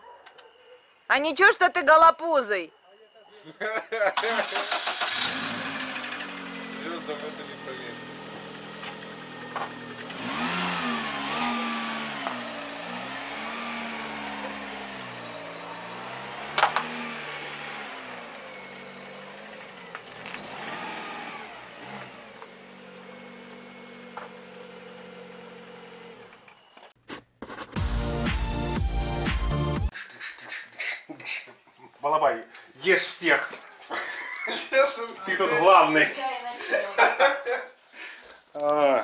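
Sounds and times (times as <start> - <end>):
car engine revving: 4.4 - 25.9.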